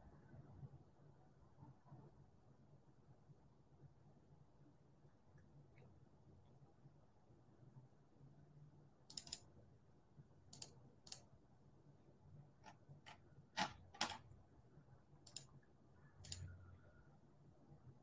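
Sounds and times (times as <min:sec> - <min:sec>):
small sharp clicks: 0:09.1 - 0:09.5, 0:10.5 - 0:11.3, 0:15.2 - 0:15.5, 0:16.2 - 0:16.6.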